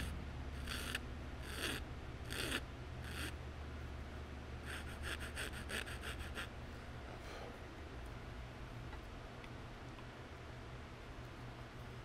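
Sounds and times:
hand file rasping on wood: 0.6 - 3.3, 4.6 - 6.5.

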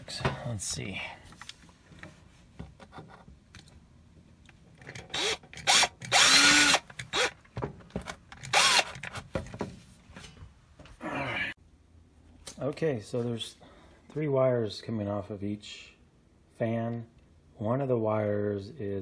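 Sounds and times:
cordless drill boring wood: 5.1 - 7.3, 8.5 - 9.0.

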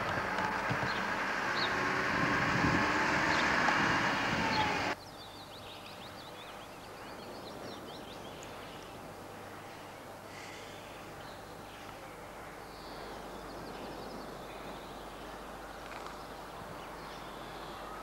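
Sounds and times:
vehicle engine and road noise: 0.0 - 5.0
small birds chirping: 0.0 - 12.0.

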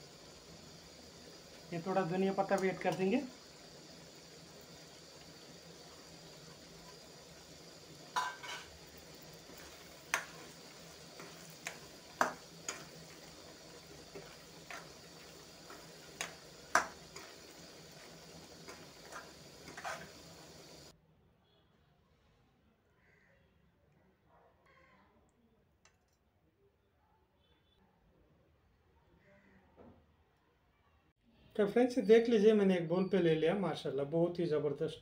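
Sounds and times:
faint sizzle: 0.0 - 20.9
spoon clinking and scraping pan: 4.7 - 20.9.

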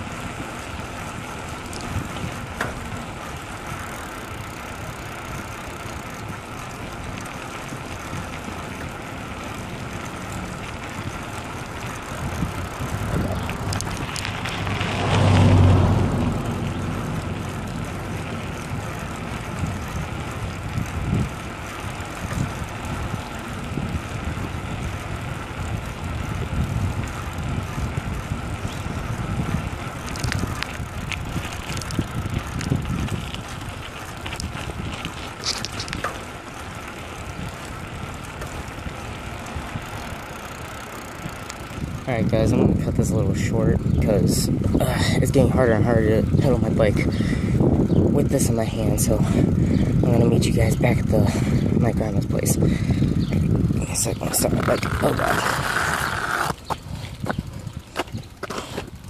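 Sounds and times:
wind over microphone: 0.0 - 3.5, 10.6 - 40.2, 41.2 - 59.0
low hum: 0.0 - 42.1
bicycle tyres rumbling on asphalt: 0.0 - 59.0.

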